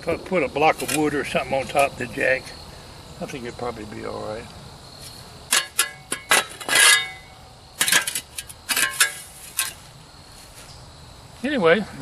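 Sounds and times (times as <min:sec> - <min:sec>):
shovel scraping metal stove: 0:00.6 - 0:01.8, 0:05.5 - 0:09.9.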